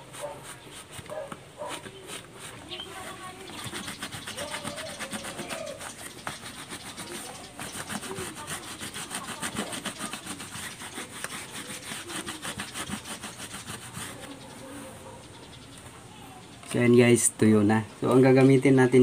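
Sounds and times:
cloth rubbing rubber inner tube: 0.0s - 15.0s.

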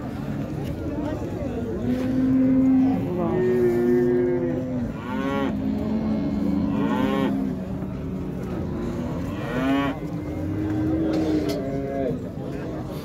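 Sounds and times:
cattle mooing: 1.9s - 12.2s.

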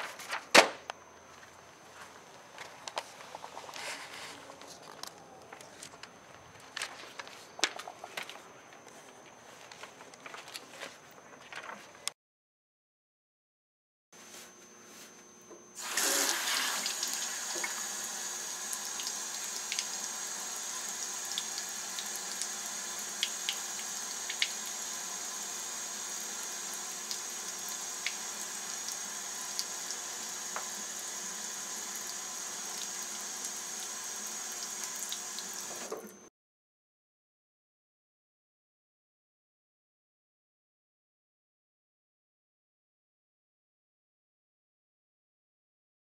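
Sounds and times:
faucet water running into sink: 15.8s - 36.1s.

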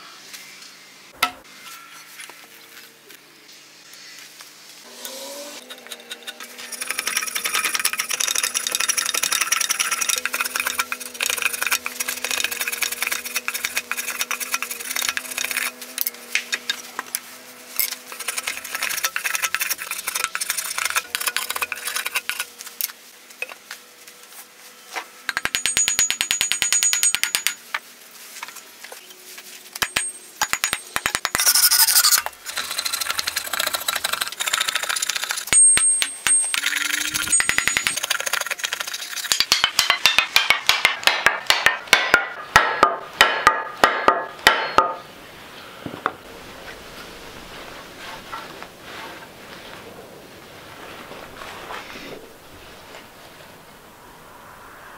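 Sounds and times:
rasp scraping wood: 5.6s - 23.0s, 31.1s - 35.5s, 36.6s - 40.5s.

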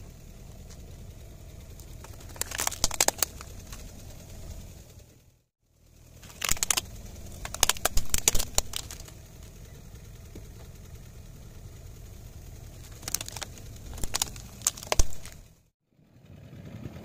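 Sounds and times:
car engine idling: 0.0s - 17.0s
plastic cracking and snapping: 1.8s - 3.9s, 6.2s - 9.2s, 12.8s - 15.4s.

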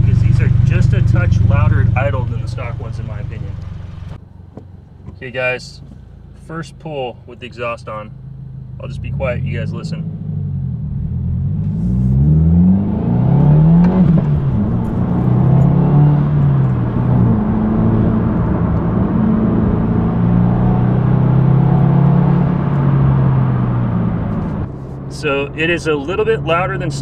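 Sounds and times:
car engine revving through gears: 0.0s - 4.2s, 7.9s - 27.0s.

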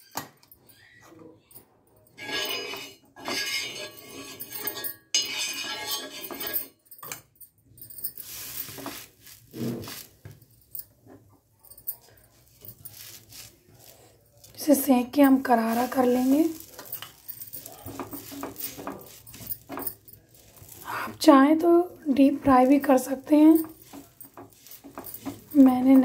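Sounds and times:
metal spoon scraping iron pan: 2.2s - 6.8s, 14.5s - 26.0s.

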